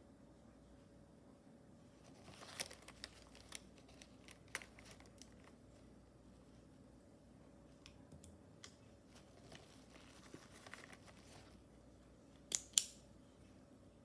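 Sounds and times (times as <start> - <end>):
pens and pencils rattling: 2.1 - 5.6, 9.1 - 11.6.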